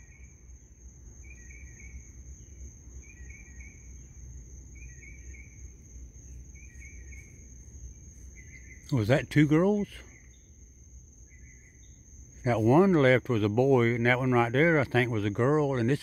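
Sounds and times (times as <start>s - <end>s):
high-pitched insect drone: 0.0s - 15.6s
insect chirping call: 0.0s - 16.0s
low background rumble: 0.0s - 16.0s.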